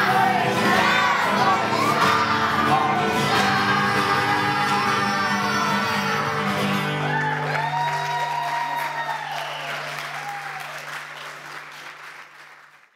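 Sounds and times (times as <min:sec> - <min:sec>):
people shouting: 0:00.0 - 0:08.8
audience applause: 0:03.6 - 0:12.9.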